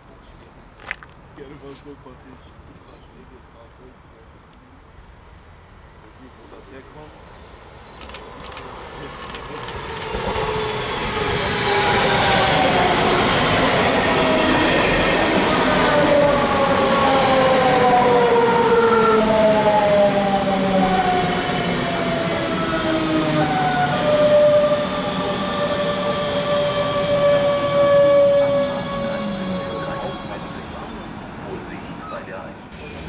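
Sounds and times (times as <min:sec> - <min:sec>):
electric train passing: 0:05.0 - 0:33.0.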